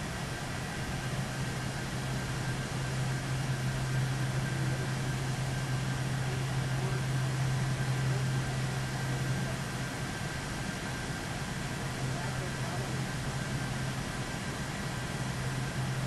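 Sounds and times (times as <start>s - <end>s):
machine hum: 0.0s - 10.5s
faint high whine: 0.0s - 16.0s
fan-like hiss: 0.0s - 16.0s.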